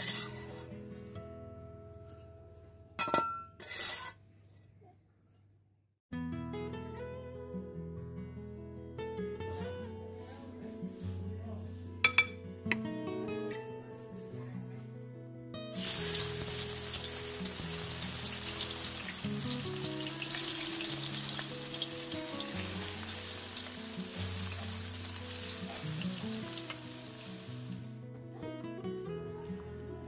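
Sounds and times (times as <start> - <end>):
fish sizzling in hot oil: 15.8 - 27.9.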